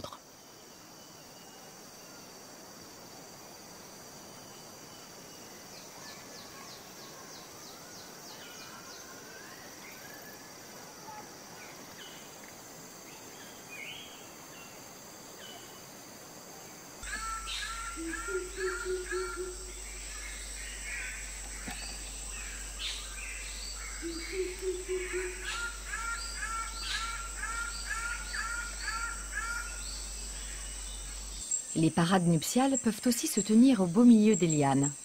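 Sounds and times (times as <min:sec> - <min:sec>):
high drone of insects: 0:00.0 - 0:35.0
bird calls: 0:17.0 - 0:32.0.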